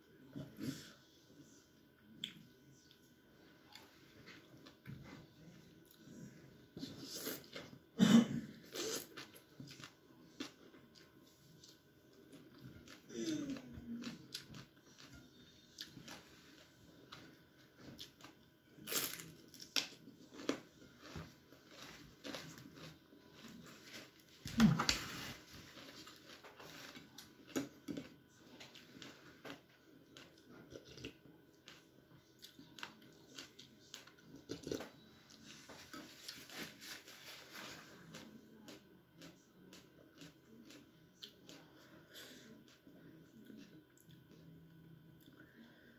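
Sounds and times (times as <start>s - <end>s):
person chewing food: 8.5s - 44.5s.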